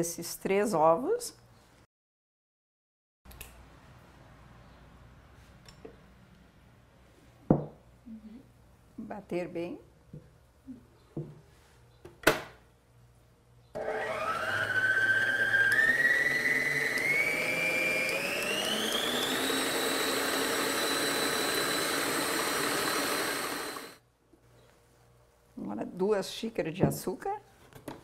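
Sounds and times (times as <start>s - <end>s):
stand mixer motor whining: 13.8s - 24.0s.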